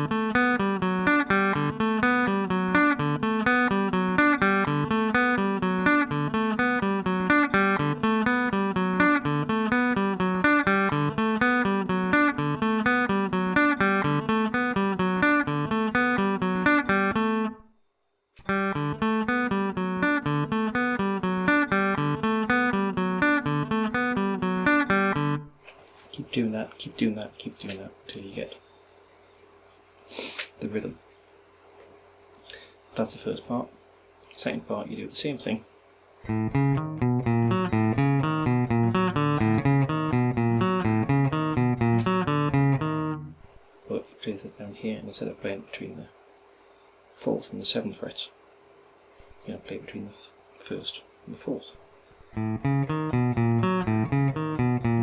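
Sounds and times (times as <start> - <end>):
electric guitar riff: 0.0 - 17.7, 18.4 - 25.6, 36.3 - 43.5, 52.3 - 55.0.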